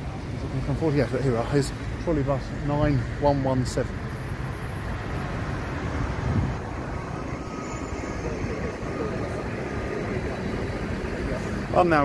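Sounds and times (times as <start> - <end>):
trolleybus tyres and road noise: 0.0 - 12.0
faint high steady tone: 6.6 - 11.4.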